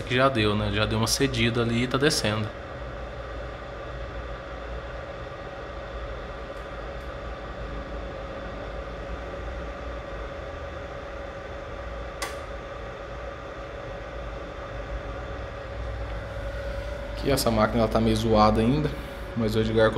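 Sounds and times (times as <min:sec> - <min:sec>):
hot-air fans blowing with hum: 0:00.0 - 0:19.9
sharp click: 0:12.2 - 0:12.5.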